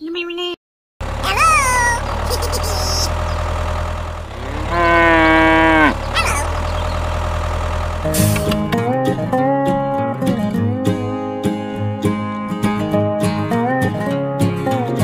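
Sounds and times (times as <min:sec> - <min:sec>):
tractor engine idling: 0:01.0 - 0:08.8
cow mooing: 0:04.3 - 0:06.5
short rising cattle call: 0:04.3 - 0:06.6.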